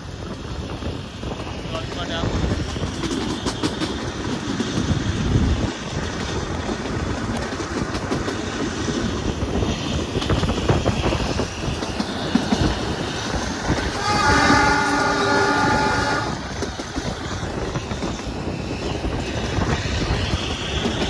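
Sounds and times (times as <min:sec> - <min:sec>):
train rumbling on track: 0:00.0 - 0:21.0
train horn chord: 0:13.9 - 0:16.5.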